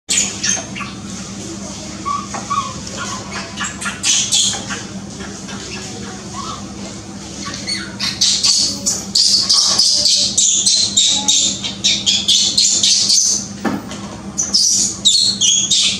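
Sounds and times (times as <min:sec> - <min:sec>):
steady low hum: 0:00.1 - 0:15.9
baby monkeys squealing: 0:02.0 - 0:06.8, 0:07.4 - 0:13.5, 0:14.4 - 0:15.9.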